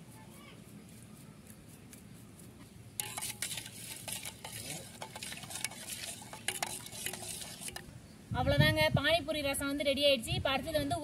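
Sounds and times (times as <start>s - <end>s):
liquid sloshing: 3.0s - 7.9s.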